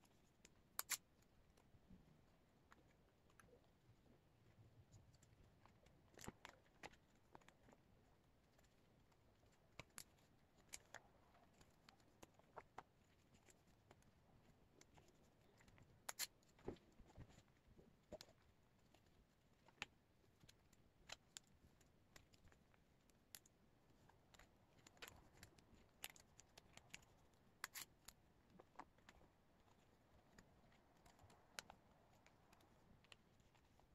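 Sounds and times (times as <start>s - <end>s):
plastic sleeves clicking and crinkling: 0.0s - 1.7s, 4.4s - 33.9s.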